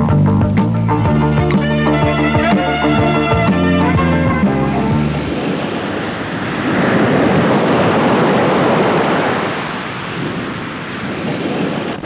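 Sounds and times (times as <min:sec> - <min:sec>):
surf washing on a beach: 0:02.5 - 0:12.0.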